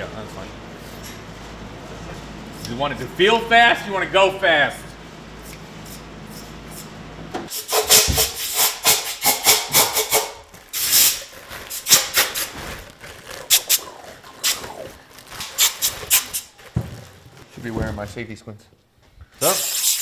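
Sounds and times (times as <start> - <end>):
compressed air bursts: 7.5 - 12.6, 13.5 - 16.5, 19.4 - 20.0.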